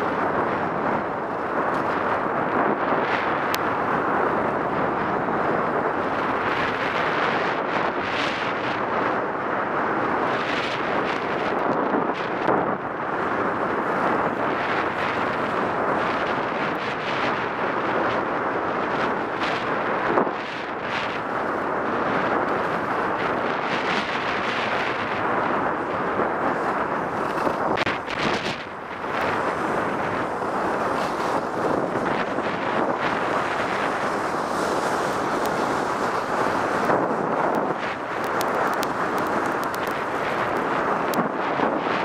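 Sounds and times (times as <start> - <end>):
wind rushing over microphone: 0.0 - 42.0
skis scraping over snow: 10.4 - 42.0.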